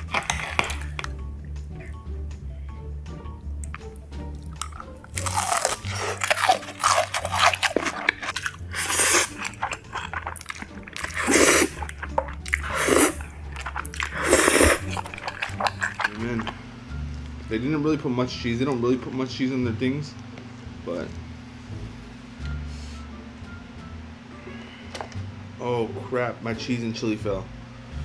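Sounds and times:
crunchy chewing: 0:00.0 - 0:01.2, 0:03.6 - 0:16.6
slurping noodles: 0:00.0 - 0:01.2, 0:03.7 - 0:16.6
soft background music: 0:00.0 - 0:28.0.

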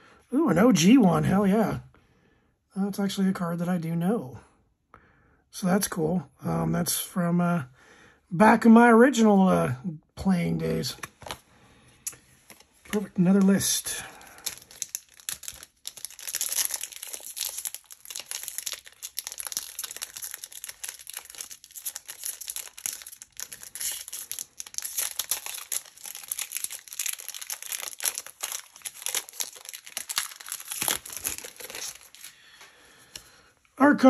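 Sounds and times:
foil wrapper tearing and crinkling: 0:12.1 - 0:32.6.

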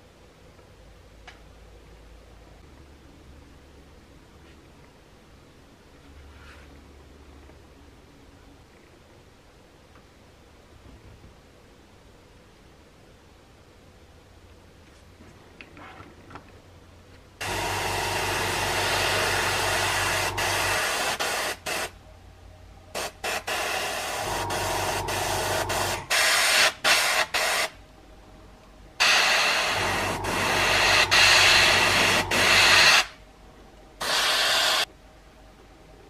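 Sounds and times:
low hum: 0:16.6 - 0:26.2, 0:27.8 - 0:34.0
airbrush spraying hiss: 0:17.4 - 0:22.0, 0:23.0 - 0:27.8, 0:29.0 - 0:33.2, 0:34.0 - 0:34.9.

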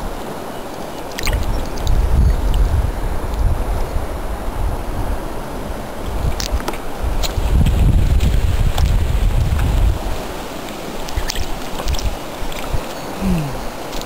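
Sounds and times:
small water splashes and drips: 0:00.7 - 0:02.6, 0:06.3 - 0:13.0
wind buffeting microphone: 0:01.0 - 0:14.0.

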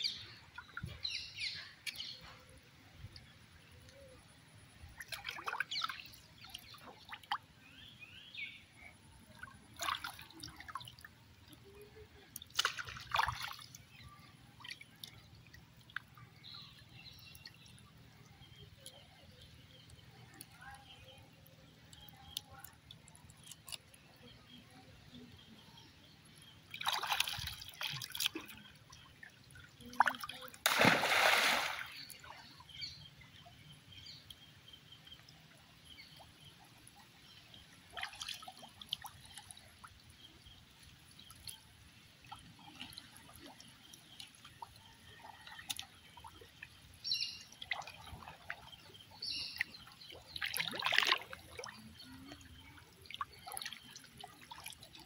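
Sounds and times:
water splashing and dripping: 0:04.9 - 0:07.5, 0:09.3 - 0:18.0, 0:26.6 - 0:32.4, 0:36.8 - 0:40.2, 0:42.2 - 0:55.0.

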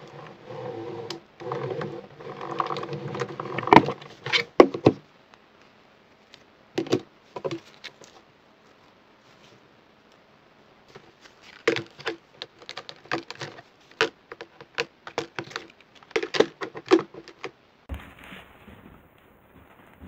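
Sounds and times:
plastic items clattering on a mat: 0:06.8 - 0:08.2, 0:10.9 - 0:20.0.

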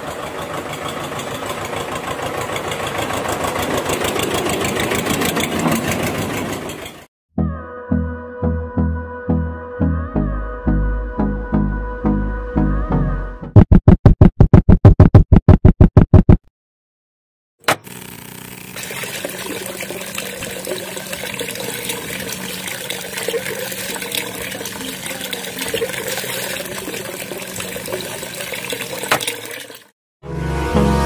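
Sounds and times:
faint pump motor hum: 0:17.7 - 0:29.8
water pouring into trough: 0:17.9 - 0:29.9.

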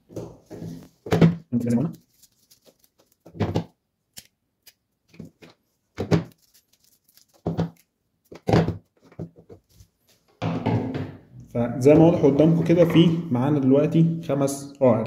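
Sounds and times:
leaves pulled off stem: 0:06.3 - 0:07.9.

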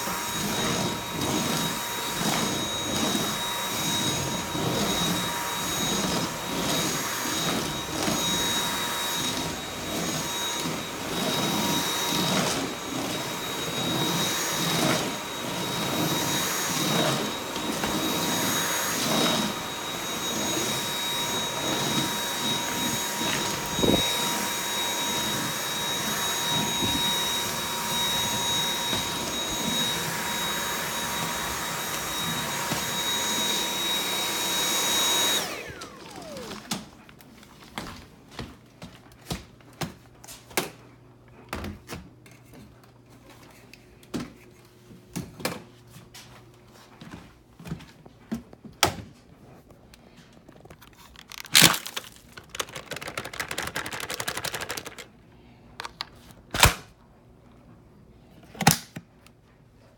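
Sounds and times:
vacuum motor winding down: 0:00.0 - 0:36.8
vacuum cleaner whining: 0:00.0 - 0:38.7, 0:49.4 - 0:56.8.

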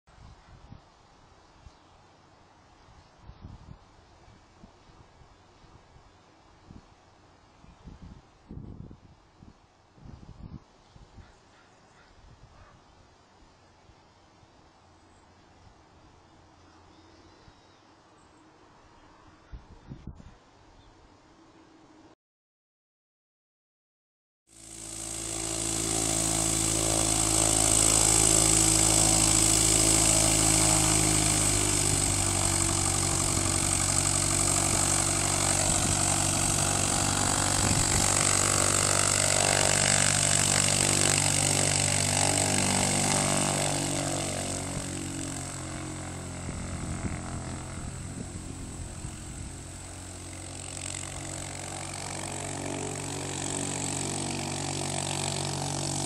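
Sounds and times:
light aircraft engine and propeller: 0:00.4 - 0:10.5, 0:24.5 - 0:56.0.

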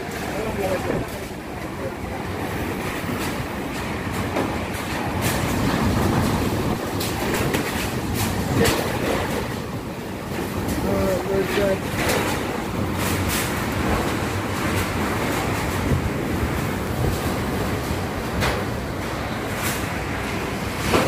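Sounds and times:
wind and rain rushing: 0:00.0 - 0:21.0.

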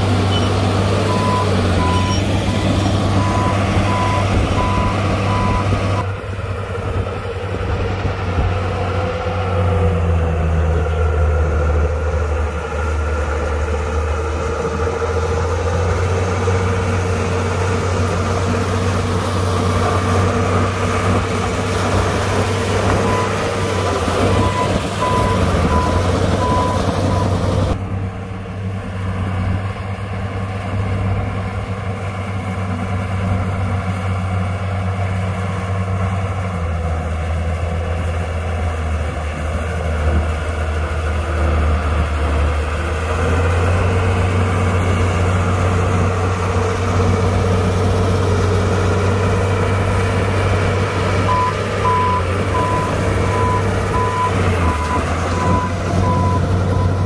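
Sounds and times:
diesel earthmoving machine running: 0:00.0 - 0:57.0
reversing alarm beeping: 0:01.1 - 0:02.6, 0:03.2 - 0:05.8, 0:23.0 - 0:27.4, 0:51.3 - 0:57.0.

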